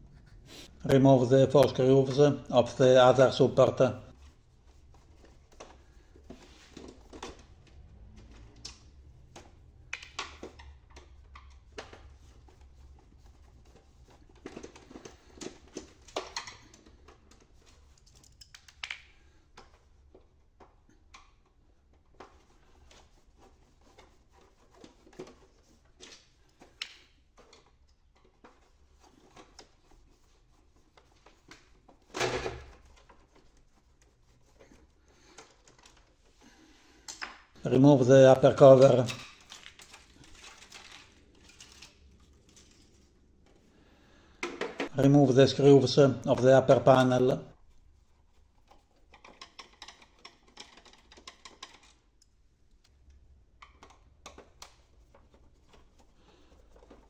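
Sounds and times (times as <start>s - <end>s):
screwdriver clicks and scrapes on plastic: 13.7s - 23.1s, 48.6s - 57.0s.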